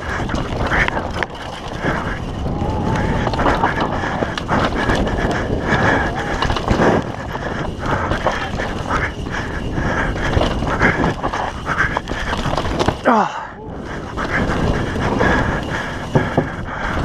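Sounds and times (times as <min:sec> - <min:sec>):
bike chain and frame rattling: 0:00.0 - 0:17.0
tyres crunching and skidding on dirt: 0:00.0 - 0:17.0.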